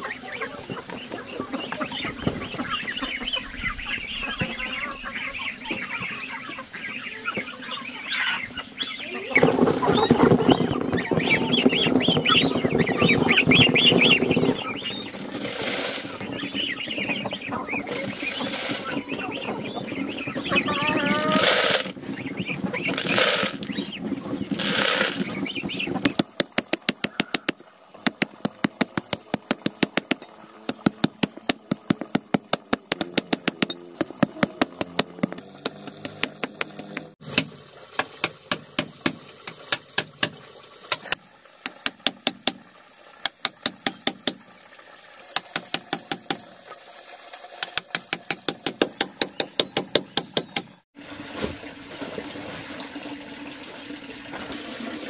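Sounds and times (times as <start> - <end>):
hatchet chopping wood: 26.0 - 42.6, 43.2 - 44.4, 45.4 - 46.4, 47.7 - 50.7.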